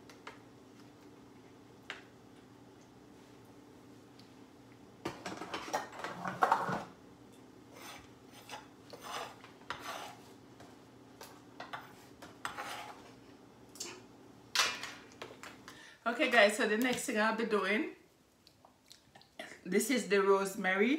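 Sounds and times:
dishes and foil pan clattering: 5.1 - 6.9
utensil scraping: 7.7 - 10.4, 11.7 - 13.2.

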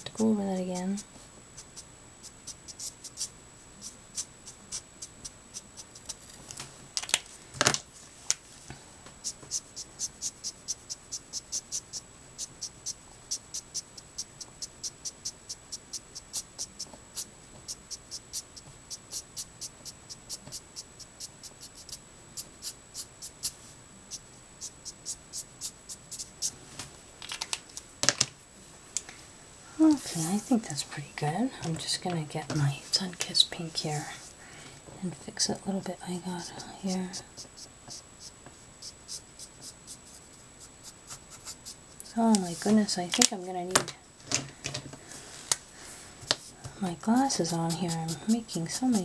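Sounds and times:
marker scratching across card: 1.6 - 6.2, 9.2 - 26.5, 36.2 - 42.8, 46.4 - 49.0.

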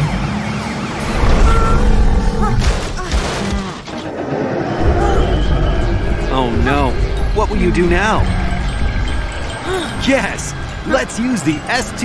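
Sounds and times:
heavy low sound effect: 0.8 - 3.0, 4.1 - 11.1.

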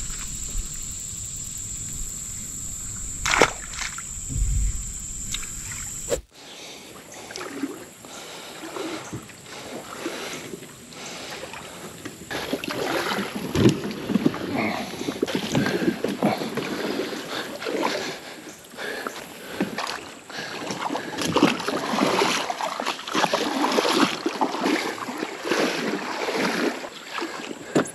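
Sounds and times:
wind on microphone: 0.0 - 6.2
steady high whine: 0.0 - 6.4
water noise: 0.0 - 27.9.

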